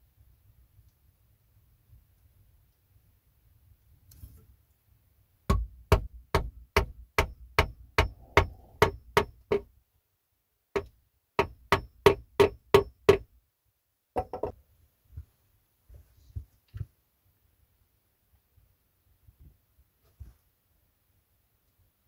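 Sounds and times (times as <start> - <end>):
hammer striking metal tool: 5.5 - 9.6.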